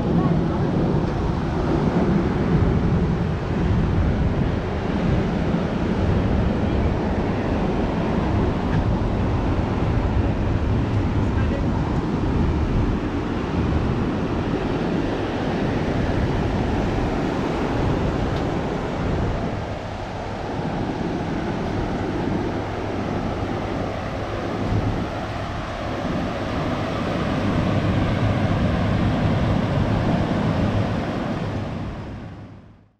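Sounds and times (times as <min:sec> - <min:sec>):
ocean surf breaking: 0:00.0 - 0:32.5
wind rumbling on microphone: 0:00.0 - 0:32.9.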